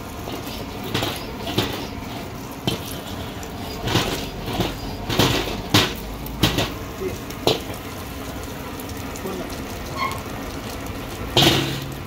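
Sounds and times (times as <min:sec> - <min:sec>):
eggs sizzling in oil: 0:00.0 - 0:12.0
metal ladle scraping a wok: 0:00.1 - 0:06.8, 0:11.4 - 0:12.0.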